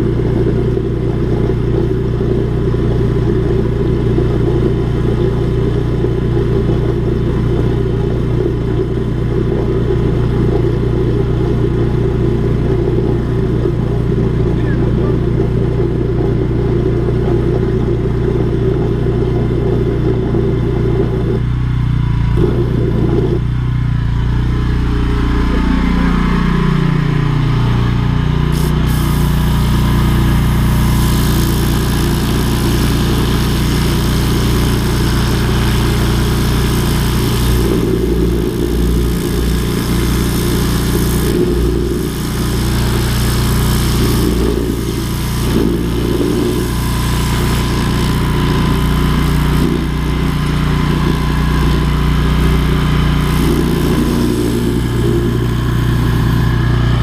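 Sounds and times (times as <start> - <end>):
machine engine running: 0.0 - 57.0
broad hiss: 28.5 - 50.3.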